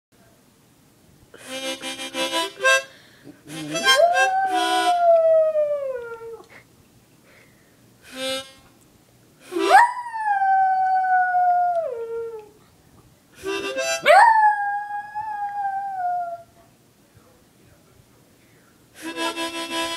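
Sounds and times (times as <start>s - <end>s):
harmonica chord bursts: 1.4s - 4.8s, 8.0s - 8.7s, 13.4s - 14.1s, 19.0s - 19.9s
small dog howling: 3.6s - 6.5s, 9.6s - 12.6s, 14.0s - 16.6s.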